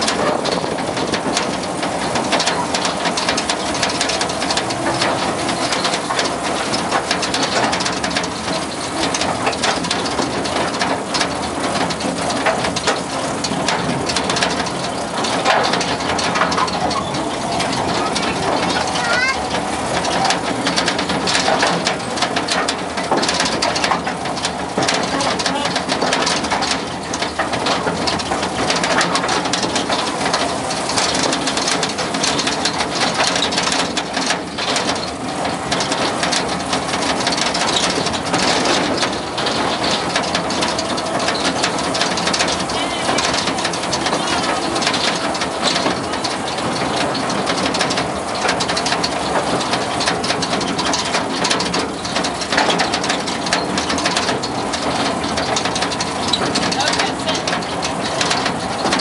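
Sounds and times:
train car and wheels rattling: 0.0 - 59.0
train engine drone: 0.0 - 59.0.

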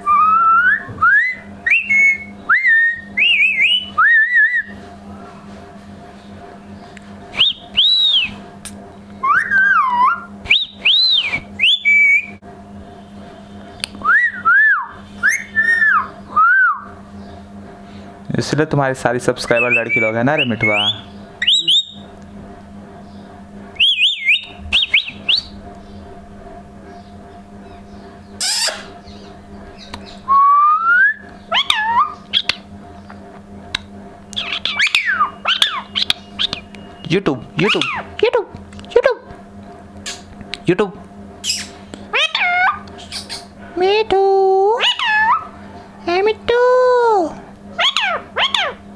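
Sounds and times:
parakeet whistling: 0.0 - 4.8, 7.4 - 8.4, 9.2 - 12.4, 14.0 - 17.0, 19.4 - 22.1, 23.8 - 26.0, 27.6 - 32.7, 34.3 - 38.1, 41.4 - 43.4, 44.8 - 45.6, 47.8 - 48.8.

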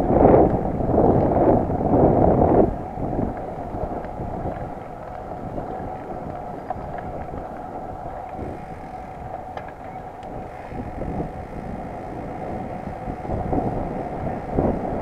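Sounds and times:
bike tyres rolling: 0.0 - 15.0
wind on microphone: 0.0 - 15.0
faint ticks: 3.3 - 14.7.

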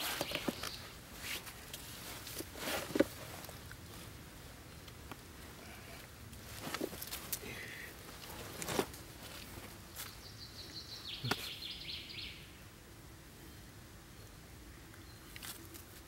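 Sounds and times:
bird chirping: 10.0 - 12.6.

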